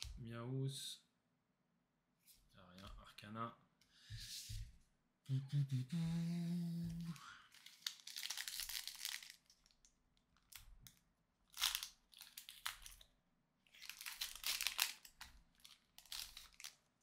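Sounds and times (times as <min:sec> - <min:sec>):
foil wrapper crinkling and tearing: 0:07.3 - 0:13.1, 0:13.7 - 0:17.0.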